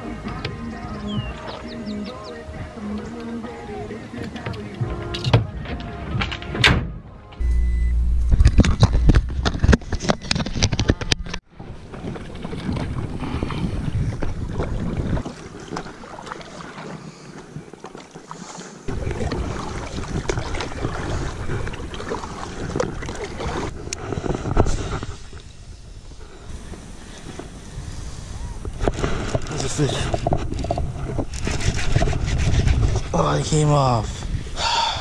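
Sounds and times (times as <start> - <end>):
wind rumbling on microphone: 7.4 - 16.4, 18.9 - 35.0
paddle strokes in water: 11.5 - 25.5, 26.1 - 33.2.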